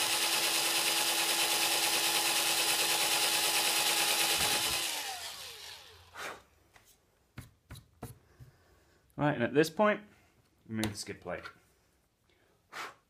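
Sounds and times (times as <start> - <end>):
cordless drill motor whine: 0.0 - 6.1.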